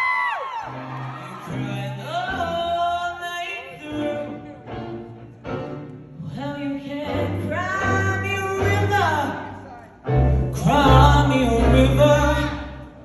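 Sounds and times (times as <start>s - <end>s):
big band playing jazz ballad: 5.3s - 13.0s.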